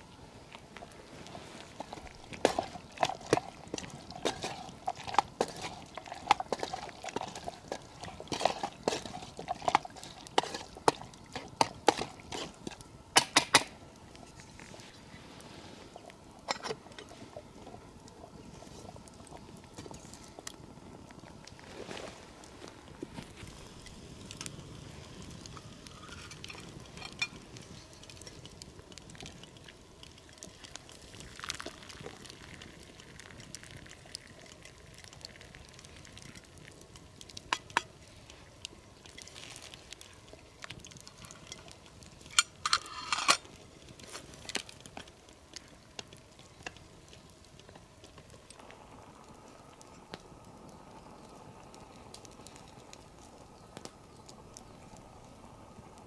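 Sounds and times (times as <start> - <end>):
campfire crackling and popping: 0.0 - 56.0
wooden spoon stirring in steel pot: 1.2 - 12.8.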